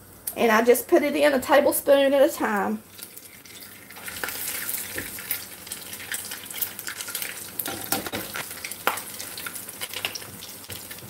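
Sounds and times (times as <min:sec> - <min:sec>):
batter sizzling in hot oil: 0:02.4 - 0:11.0.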